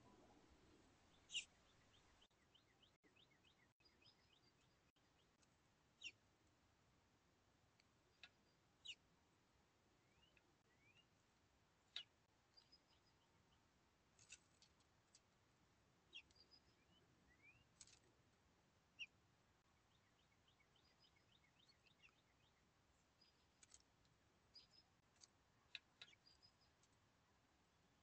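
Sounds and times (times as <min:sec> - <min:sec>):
bird pecking at seeds: 0:14.0 - 0:18.5, 0:21.7 - 0:27.5
high bird chirps: 0:25.7 - 0:26.8.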